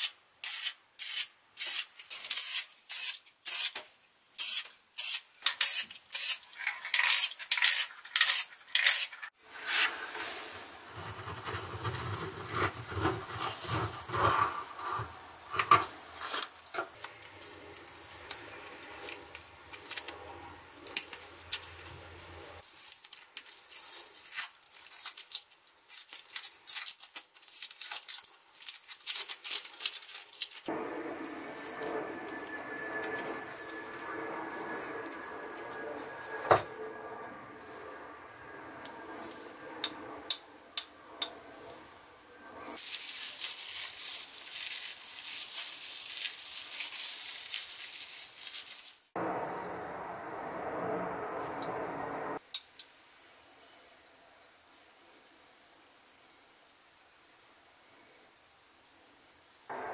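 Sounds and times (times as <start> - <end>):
spray can spraying: 0.4 - 3.7, 4.4 - 6.4
low hum: 30.7 - 42.8, 49.2 - 52.4.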